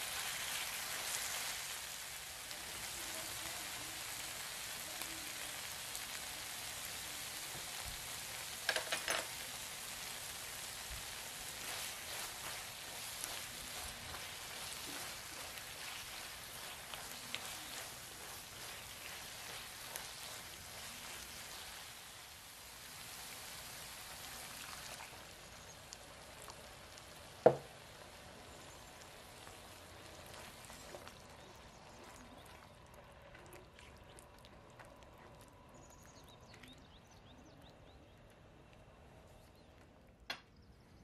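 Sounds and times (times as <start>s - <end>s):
vegetables sizzling in a skillet: 0.0s - 33.3s
broth simmering with pops: 0.0s - 40.7s
spatula stirring: 10.6s - 22.4s, 29.0s - 35.4s.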